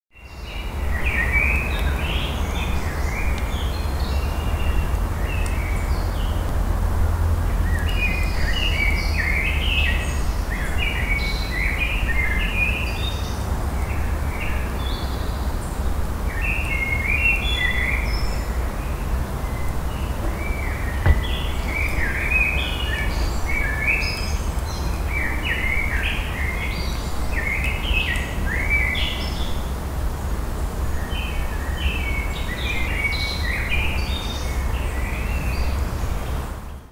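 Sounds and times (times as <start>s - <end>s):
small birds chirping: 7.5s - 29.8s.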